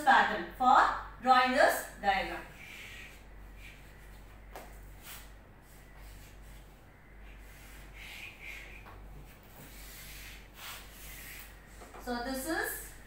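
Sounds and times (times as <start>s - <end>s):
chalk scratching on chalkboard: 7.3s - 12.0s.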